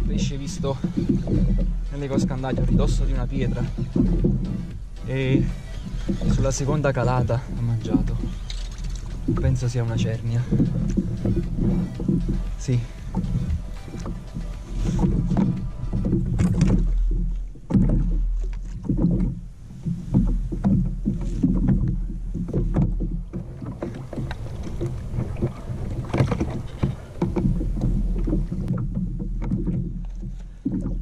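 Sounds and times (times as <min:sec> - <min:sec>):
knocks and splashes: 0:00.0 - 0:31.0
water slapping kayak hull: 0:00.0 - 0:31.0
wind buffeting microphone: 0:00.0 - 0:31.0.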